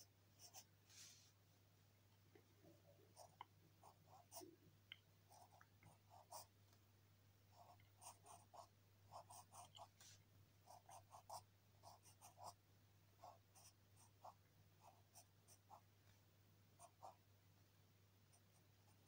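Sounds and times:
low steady hum: 0.0 - 19.0
pencil scratching on paper: 7.6 - 12.6, 13.2 - 15.8.

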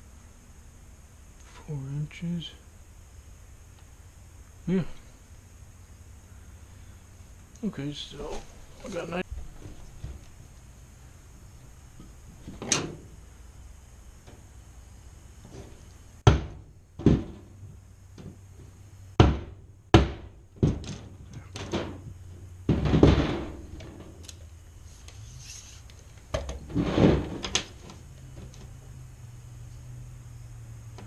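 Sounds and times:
scraping on wood: 24.8 - 28.8.

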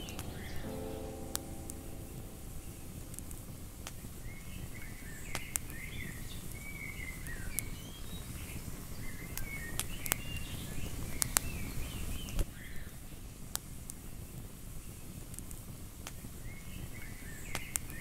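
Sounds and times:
low steady rumble: 0.0 - 6.3
bird singing: 0.0 - 12.9.

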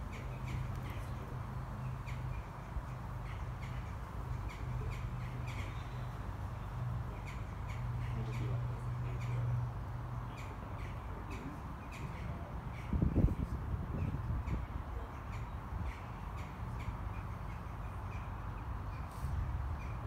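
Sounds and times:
jackdaws calling: 1.8 - 13.1.

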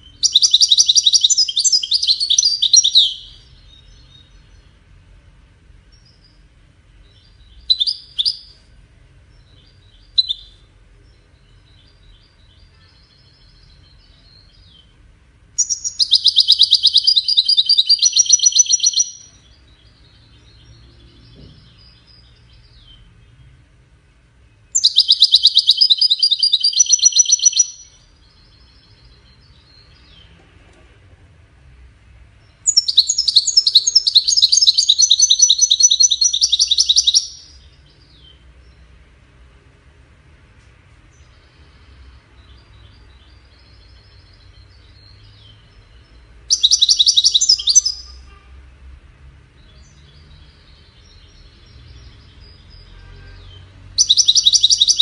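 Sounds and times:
goldfinch singing: 0.0 - 4.7, 7.0 - 8.6, 15.6 - 23.5, 24.6 - 30.3, 32.4 - 38.8, 41.2 - 48.3, 49.6 - 55.0.

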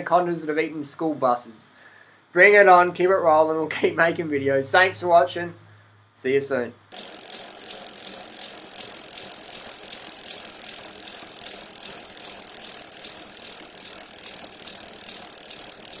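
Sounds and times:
constant high hiss: 0.0 - 16.0
rapid mechanical clicking: 6.9 - 16.0.

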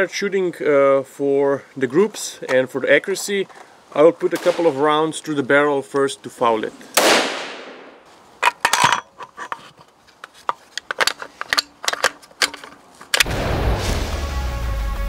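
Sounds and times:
heavy bass music: 13.3 - 15.0.

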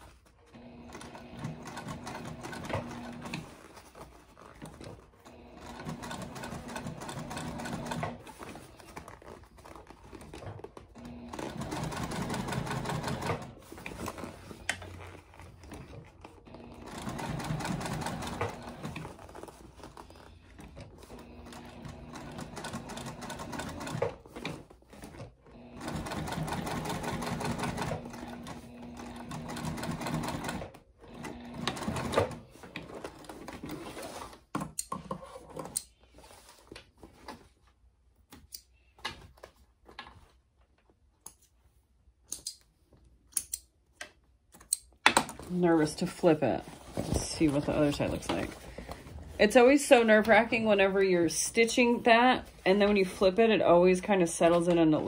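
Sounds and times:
sewing machine stitching: 0.0 - 34.4.

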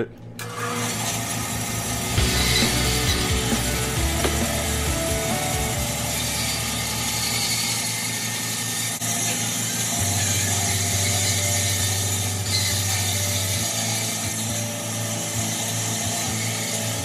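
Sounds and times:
bandsaw cutting: 0.4 - 17.0
low hum: 1.7 - 7.5.

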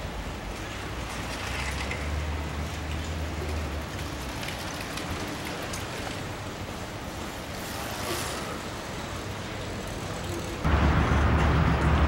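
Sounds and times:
street and traffic noise: 0.0 - 12.0
vehicle running: 9.6 - 12.0.

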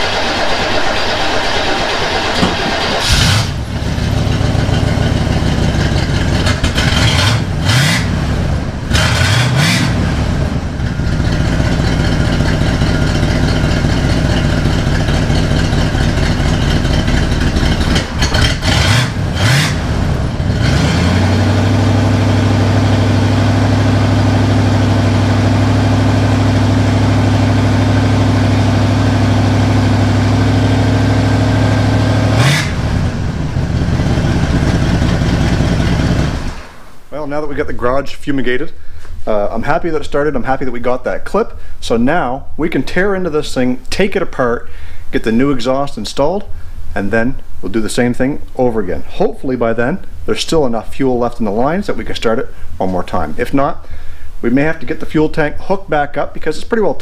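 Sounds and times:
car engine revving and idling: 0.0 - 36.9.

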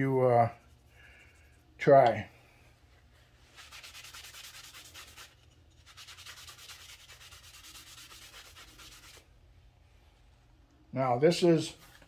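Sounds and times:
paper towel rubbing on wood: 3.2 - 9.2.

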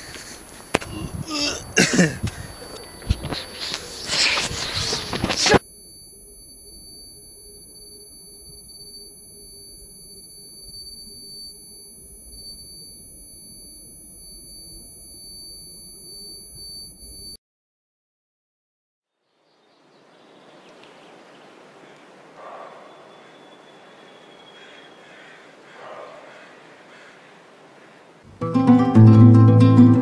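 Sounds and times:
high-pitched ringing tone: 2.4 - 17.4.

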